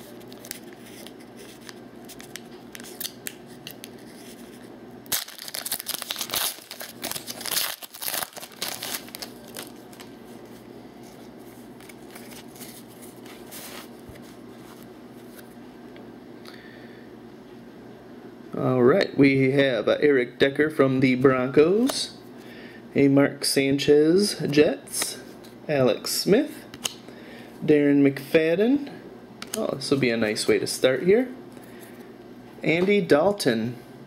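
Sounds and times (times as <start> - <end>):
cards rustling: 0.0 - 15.5
foil wrapper crinkling: 5.0 - 10.5.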